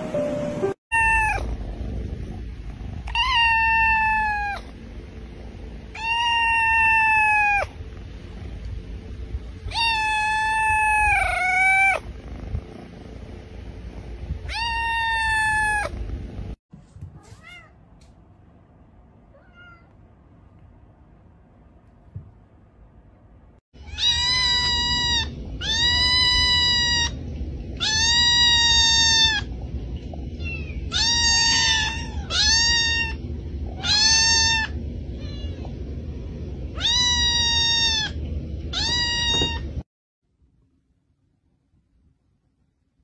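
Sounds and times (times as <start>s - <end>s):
kitten meowing loudly: 6.0s - 7.7s, 9.7s - 12.0s, 30.4s - 33.2s, 36.8s - 39.6s.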